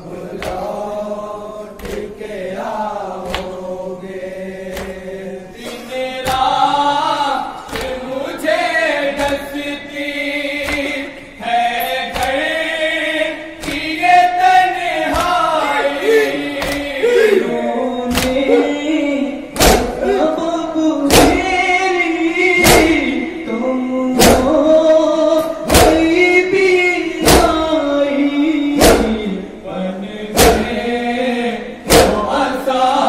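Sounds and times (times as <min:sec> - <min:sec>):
men singing in unison through pa: 0:00.0 - 0:33.0
chest-beating slaps: 0:00.4 - 0:00.7, 0:01.8 - 0:02.1, 0:03.2 - 0:03.6, 0:04.7 - 0:05.0, 0:05.6 - 0:06.6, 0:07.7 - 0:08.0, 0:10.6 - 0:11.0, 0:12.1 - 0:12.5, 0:13.6 - 0:14.0, 0:15.0 - 0:15.4, 0:16.5 - 0:17.0, 0:18.1 - 0:18.5, 0:19.6 - 0:20.0, 0:21.1 - 0:21.5, 0:22.6 - 0:23.1, 0:24.2 - 0:24.6, 0:25.7 - 0:26.2, 0:27.2 - 0:27.6, 0:28.8 - 0:29.3, 0:30.4 - 0:30.9, 0:31.9 - 0:32.4.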